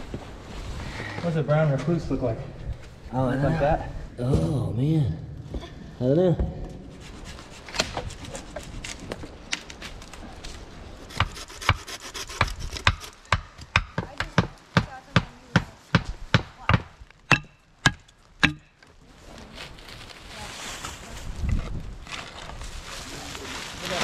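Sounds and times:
hand tool chopping wood and earth: 11.1 - 18.8.

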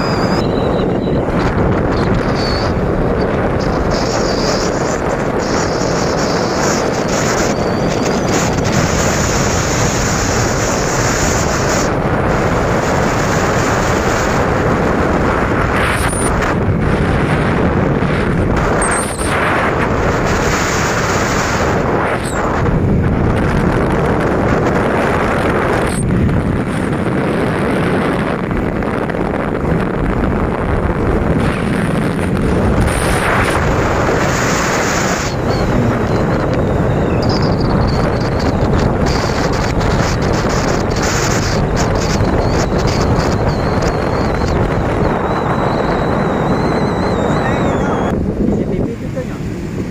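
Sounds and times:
road noise: 0.0 - 49.9
wind rush on microphone: 0.0 - 49.9.

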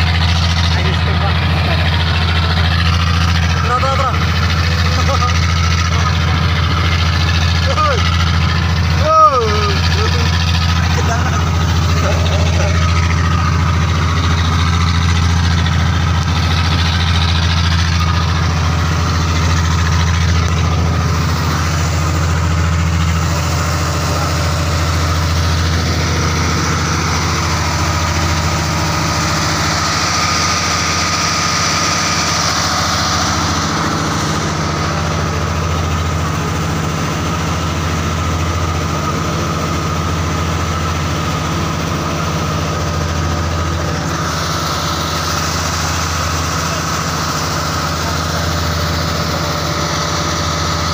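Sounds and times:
boat engine droning: 0.0 - 50.9.

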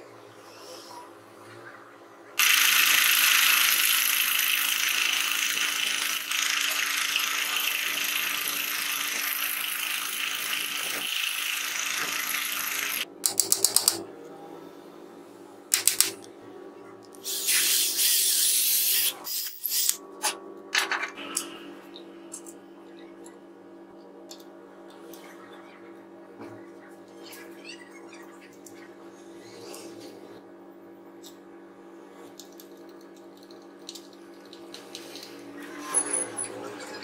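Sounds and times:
drill boring into wood: 2.4 - 13.0.

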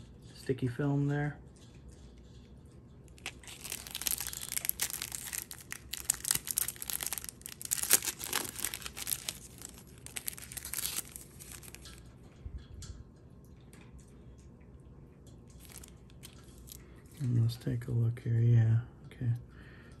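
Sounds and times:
plastic bag crinkling: 3.1 - 12.1, 15.5 - 17.4.

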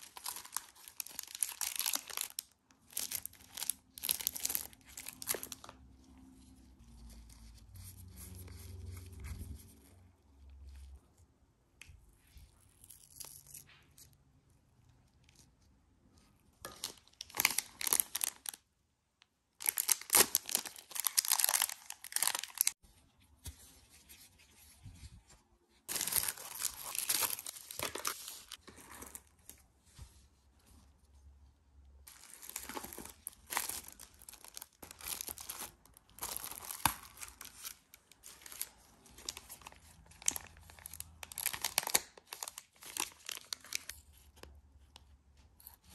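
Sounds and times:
plastic packaging crinkling: 0.0 - 5.8, 16.6 - 18.6, 19.6 - 22.8, 25.9 - 29.2, 32.1 - 44.0.

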